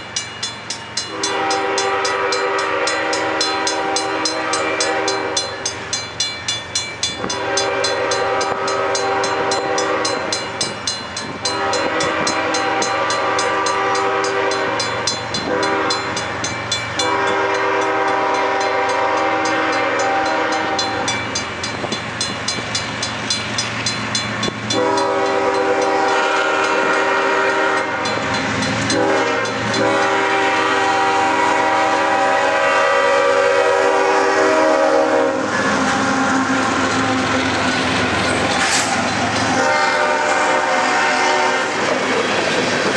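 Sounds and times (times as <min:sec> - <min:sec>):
locomotive air horn blasts: 0:01.1 - 0:05.7, 0:07.2 - 0:10.6, 0:11.4 - 0:16.3, 0:17.0 - 0:21.2, 0:24.7 - 0:37.4, 0:38.7 - 0:42.0.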